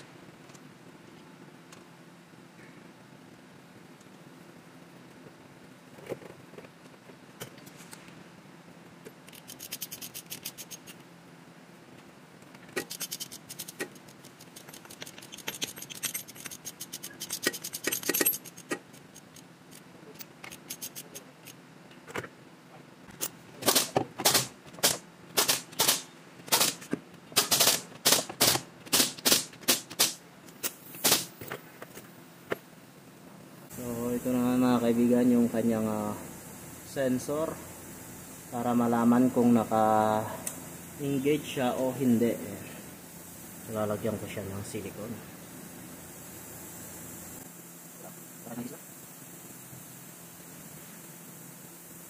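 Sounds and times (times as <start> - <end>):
ratchet wrench clicking: 9.3 - 11.0, 12.8 - 21.6.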